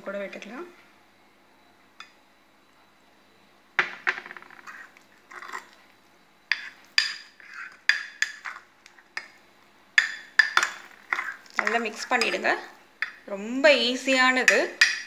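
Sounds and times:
spoon scraping ceramic mug: 4.6s - 5.8s.

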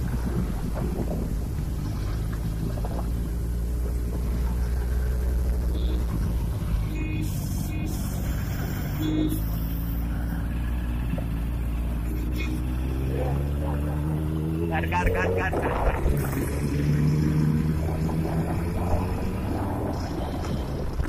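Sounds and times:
motorcycle engines running: 0.0s - 21.0s
road noise: 0.0s - 21.0s.

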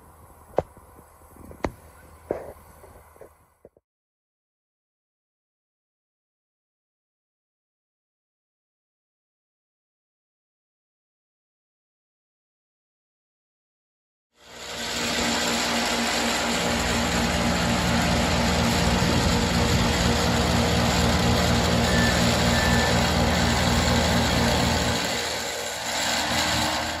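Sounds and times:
engine running with low rumble: 0.0s - 3.8s, 14.4s - 27.0s.

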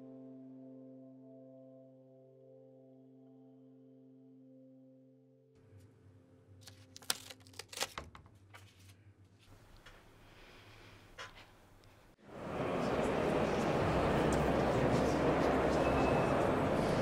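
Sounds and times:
loud noisy ambience: 12.2s - 17.0s.

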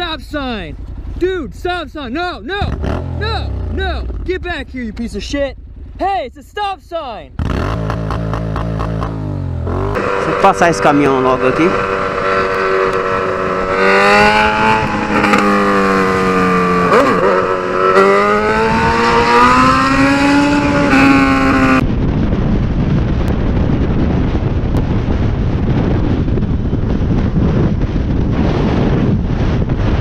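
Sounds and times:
motorcycle engine accelerating: 0.4s - 6.0s, 7.3s - 30.0s
wind rushing on microphone: 7.4s - 30.0s.

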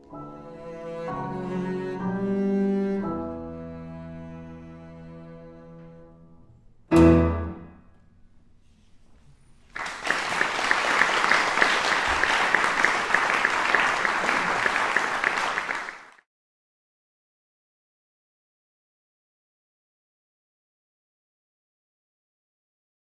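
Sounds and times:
double bass and piano: 0.0s - 7.9s
audience applause: 9.7s - 16.2s.

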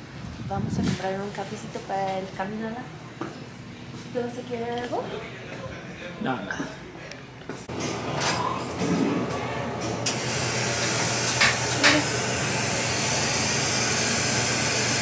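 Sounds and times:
steam wand hissing: 10.0s - 15.0s.

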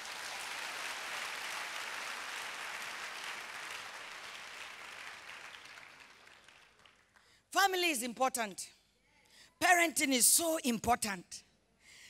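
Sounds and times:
crowd applauding: 0.0s - 7.3s.

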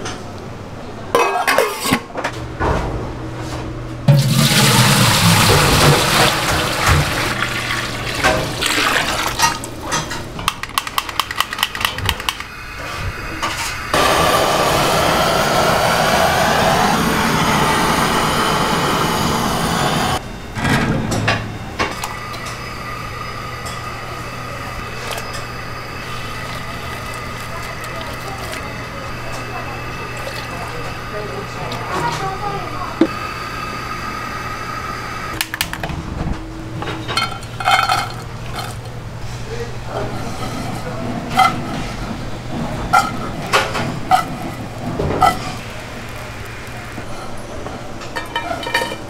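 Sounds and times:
liquid pouring: 4.1s - 9.8s, 26.0s - 29.0s, 30.0s - 30.9s
blowtorch hissing: 12.5s - 20.2s, 22.2s - 35.4s, 43.0s - 48.0s.

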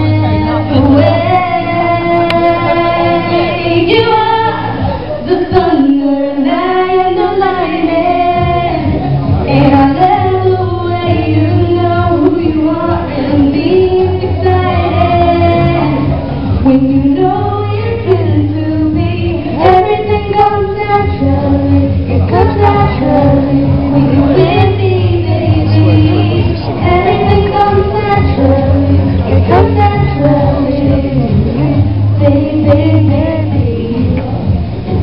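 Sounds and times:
backing music: 0.0s - 35.0s
steady bass line: 0.0s - 35.0s
woman singing pop song: 0.0s - 35.0s.

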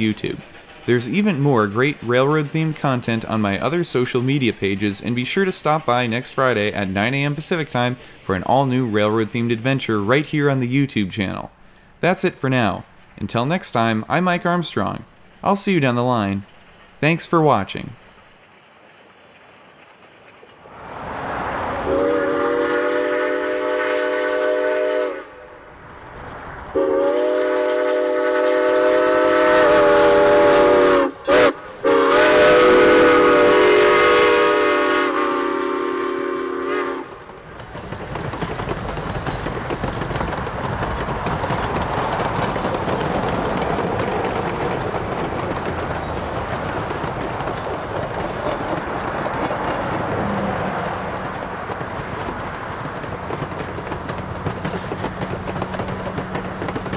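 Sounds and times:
train wheels clattering over rails: 0.0s - 10.1s, 18.0s - 21.0s, 37.1s - 56.9s
steam locomotive whistle: 21.8s - 25.6s, 26.7s - 37.2s.

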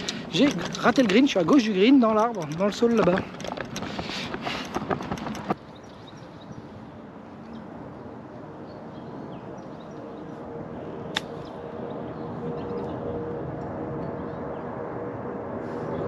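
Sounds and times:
engine-like drone: 7.1s - 16.0s
sharp click: 11.1s - 11.4s.

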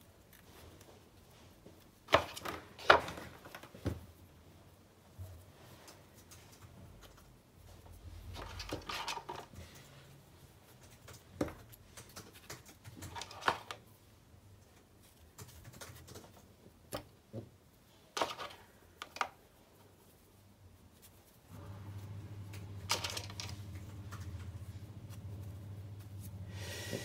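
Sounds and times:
soft rustling of straws: 0.0s - 27.0s
straws tapping and clicking: 10.8s - 13.6s.

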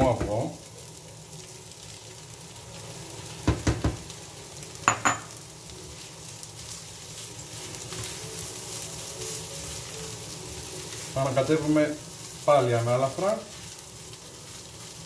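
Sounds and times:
rice and egg sizzling in pan: 0.0s - 15.0s
utensils knocking on pan: 3.4s - 4.0s, 4.9s - 5.4s.

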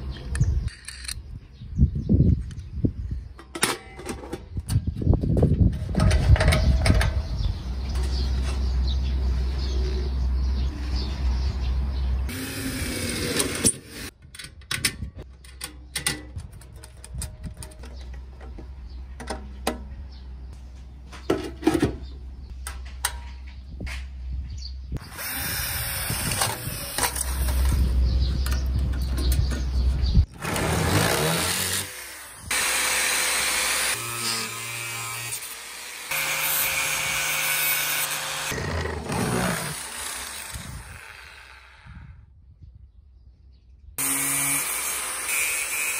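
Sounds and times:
metallic clicks of bolts and nuts: 14.2s - 18.2s
angle grinder cutting steel: 30.4s - 41.9s, 44.0s - 45.9s.

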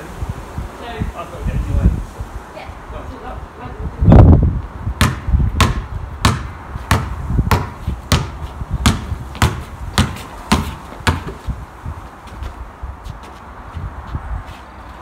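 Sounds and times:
basketball bouncing on paving: 5.0s - 11.5s.

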